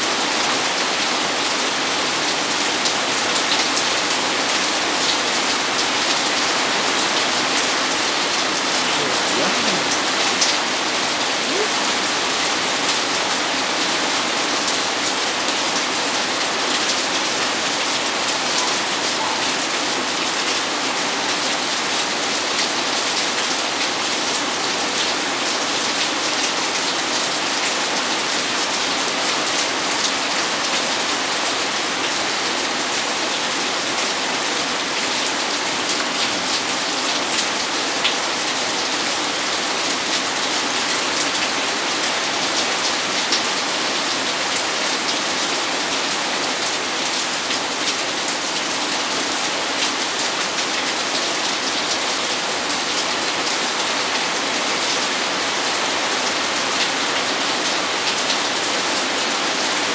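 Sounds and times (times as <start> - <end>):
heavy rain pouring: 0.0 - 59.9
raindrops tapping surfaces: 5.1 - 13.5.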